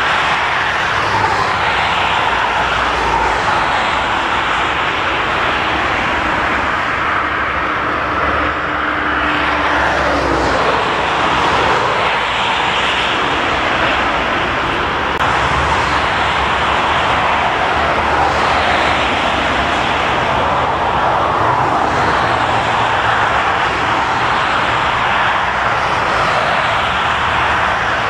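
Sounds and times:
jet engines running: 0.0 - 28.0.

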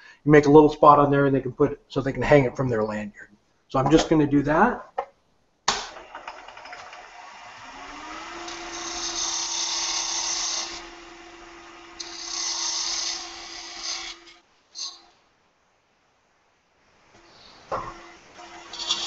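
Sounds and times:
tool cutting spinning wood: 5.9 - 15.0, 17.7 - 19.0
wood lathe motor whine: 6.0 - 15.0, 17.7 - 19.0.

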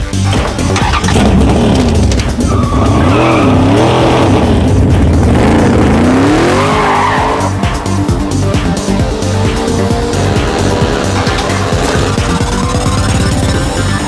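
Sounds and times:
tyres squealing: 0.2 - 4.4, 6.4 - 7.6
car engine revving: 0.3 - 14.0.

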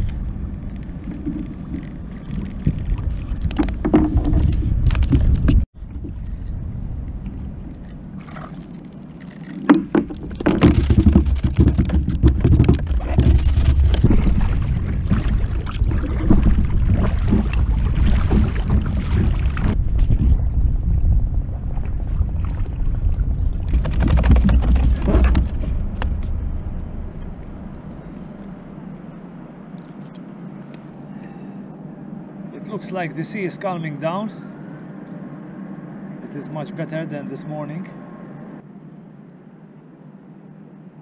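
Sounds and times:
wind on microphone: 0.0 - 8.6, 9.7 - 29.1
waves slapping against kayak: 9.4 - 19.8.

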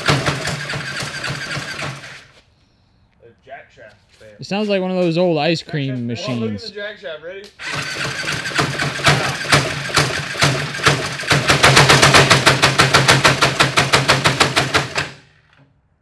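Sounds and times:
small engine knocking and rattling: 0.0 - 2.2, 7.6 - 15.3.

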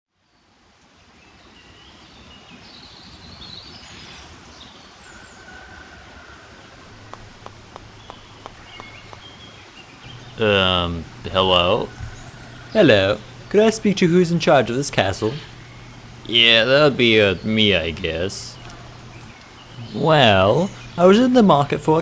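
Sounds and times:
birds chirping: 6.6 - 22.0
low hum: 6.8 - 22.0
steady hiss: 6.8 - 22.0.

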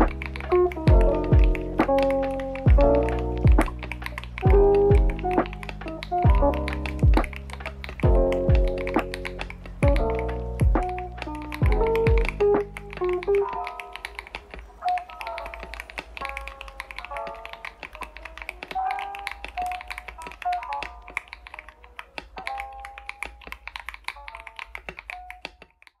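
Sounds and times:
background music with melody: 0.0 - 25.7
mechanical keyboard typing: 0.0 - 26.0.

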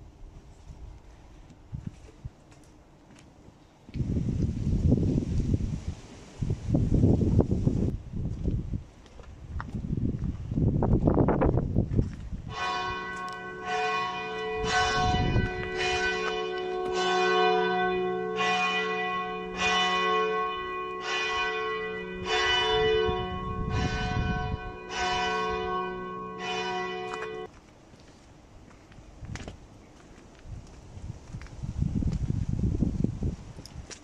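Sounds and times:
low rumble: 9.6 - 16.6
church bell tolling: 12.5 - 27.5.

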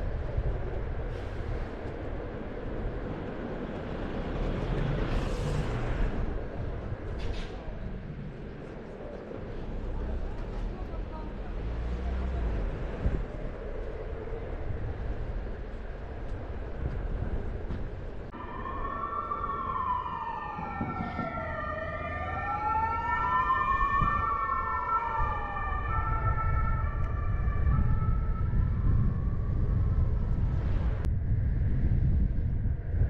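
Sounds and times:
emergency vehicle siren wailing: 18.3 - 31.0
low rumble: 25.0 - 33.0.

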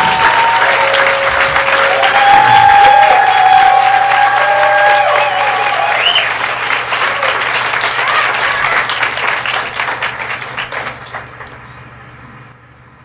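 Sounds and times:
audience cheering and whooping: 0.0 - 9.2
audience applauding: 0.0 - 11.7.

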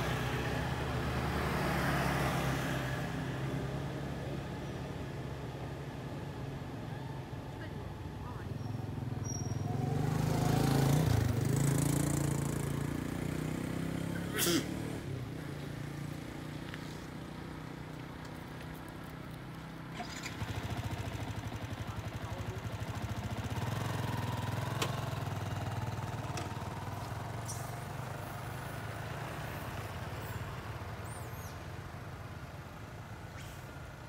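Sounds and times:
motorcycle engine running: 8.0 - 32.8.

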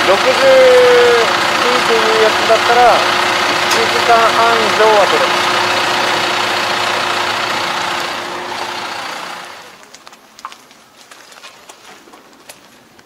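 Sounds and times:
engine idling: 0.0 - 9.8.

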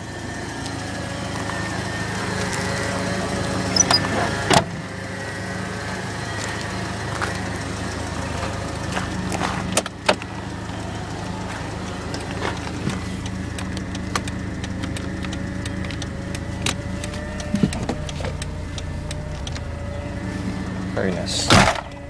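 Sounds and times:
car engine idling: 0.0 - 22.0
car door and fittings clicks: 9.4 - 10.4, 12.0 - 20.0.

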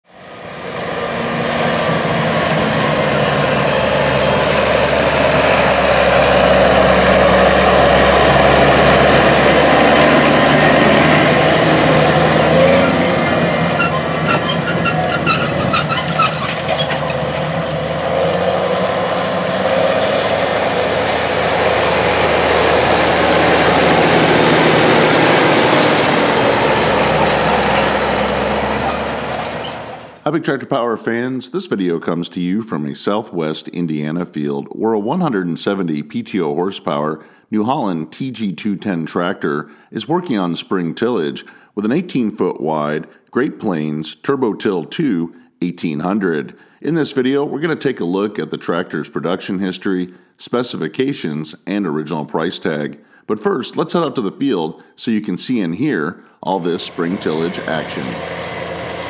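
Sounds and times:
tractor diesel engine under load: 0.0 - 30.3, 56.2 - 59.0.

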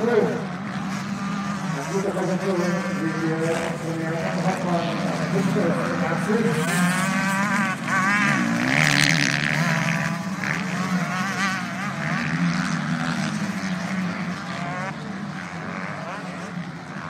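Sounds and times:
motorcycle engines racing: 0.0 - 17.0.

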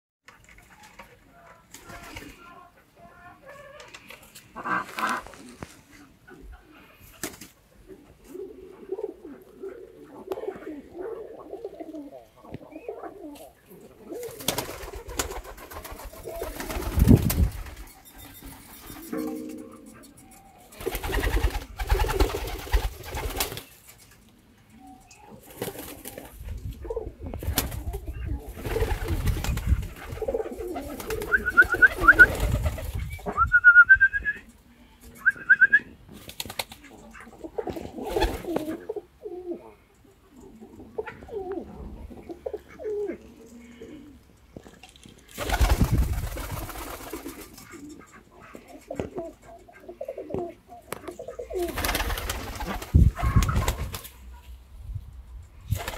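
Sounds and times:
pigeons cooing: 3.3 - 23.7, 24.6 - 44.6, 46.4 - 54.5
wing flapping: 14.1 - 19.3, 20.8 - 24.0, 27.3 - 33.3, 45.3 - 47.9, 51.6 - 54.2, 55.7 - 55.9.

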